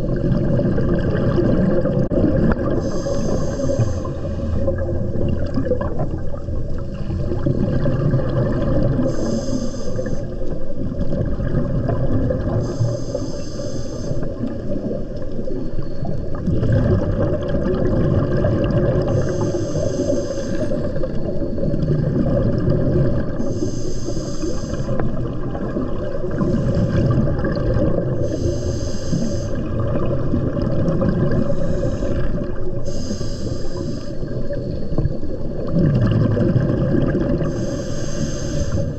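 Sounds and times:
bubbling rumble underwater: 0:00.0 - 0:38.9
regulator hiss: 0:02.7 - 0:04.8, 0:09.0 - 0:10.5, 0:12.6 - 0:14.6, 0:19.1 - 0:21.5, 0:23.4 - 0:25.2, 0:28.2 - 0:29.7, 0:31.4 - 0:35.1, 0:37.4 - 0:38.9.

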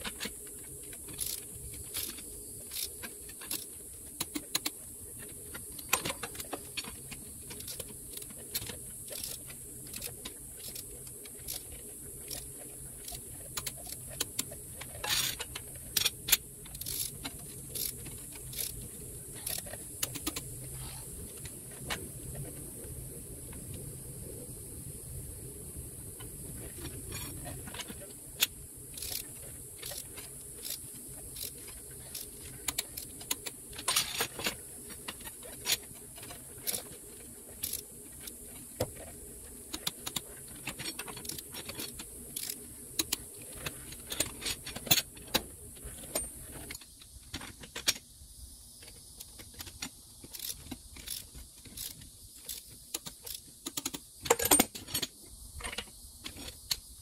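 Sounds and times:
torque wrench clicking: 0:01.0 - 0:04.8, 0:05.6 - 0:20.5, 0:28.4 - 0:35.8, 0:37.6 - 0:38.4, 0:39.7 - 0:45.0, 0:49.2 - 0:54.8.

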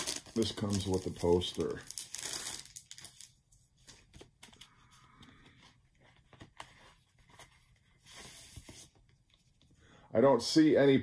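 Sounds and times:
cardboard record sleeve rustling: 0:05.4 - 0:09.6.

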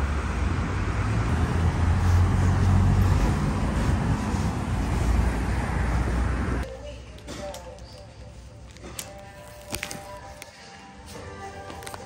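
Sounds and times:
traffic engine hum: 0:00.0 - 0:06.7
street noise: 0:00.0 - 0:12.0.

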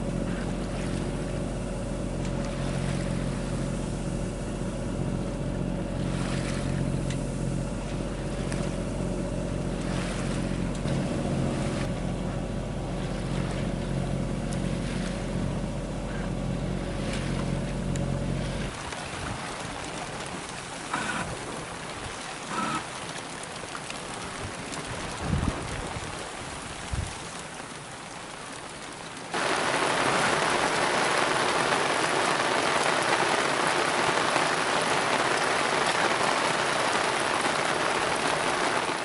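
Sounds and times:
boat diesel engine running: 0:00.0 - 0:26.2
water washing along hull: 0:00.0 - 0:39.0.

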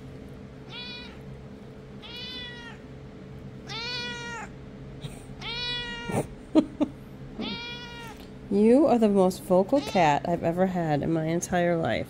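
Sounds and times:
cat meowing: 0:00.7 - 0:01.3, 0:02.0 - 0:02.9, 0:03.6 - 0:04.6, 0:05.4 - 0:06.3, 0:07.4 - 0:08.3.

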